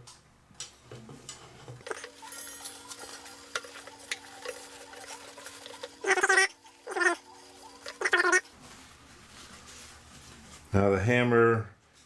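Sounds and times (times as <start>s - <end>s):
paper towel rustling: 1.8s - 11.2s.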